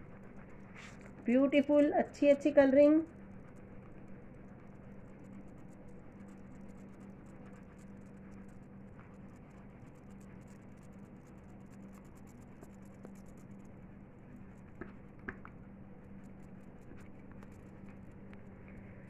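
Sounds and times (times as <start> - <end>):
crayon scratching on paper: 0.0 - 13.8
low steady hum: 0.0 - 19.0
light taps: 14.8 - 15.6.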